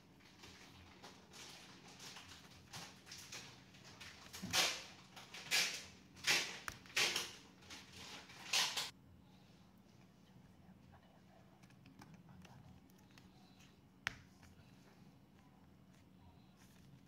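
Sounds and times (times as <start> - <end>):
soft handling rustles: 11.3 - 17.0.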